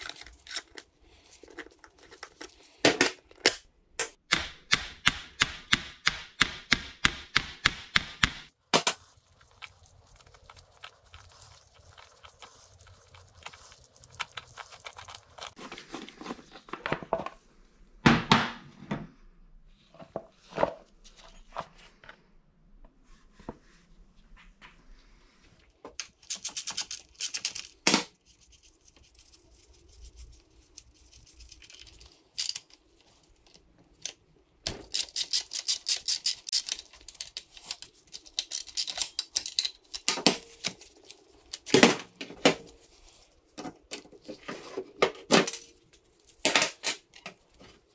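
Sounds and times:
metal clicks and knocks of tools: 0:34.8 - 0:40.3.

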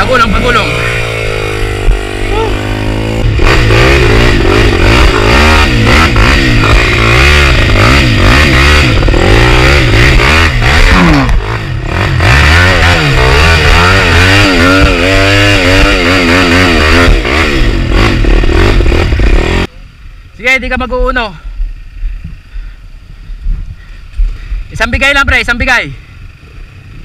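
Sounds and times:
dirt bike engine revving: 0:00.0 - 0:19.7.

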